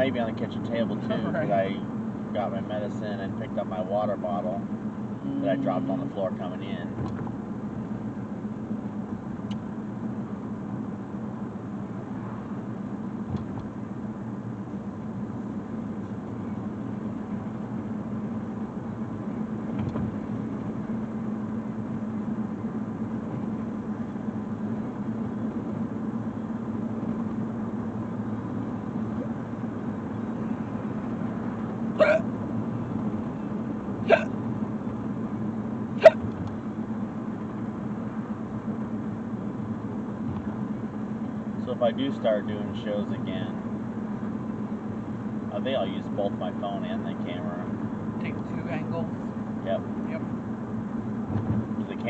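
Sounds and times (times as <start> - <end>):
road and engine noise in car: 0.0 - 52.0.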